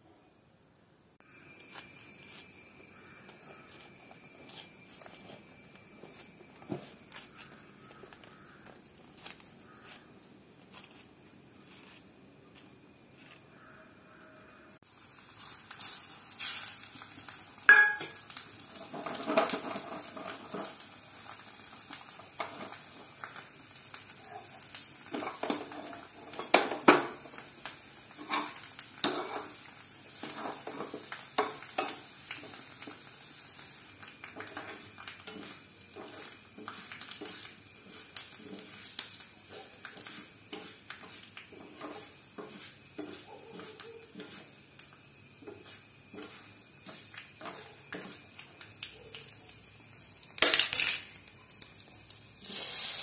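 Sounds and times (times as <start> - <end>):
spices sizzling in hot oil: 1.2 - 10.0, 14.8 - 53.0
metal spoon scraping pans: 18.8 - 20.8, 28.1 - 33.2, 34.2 - 48.2.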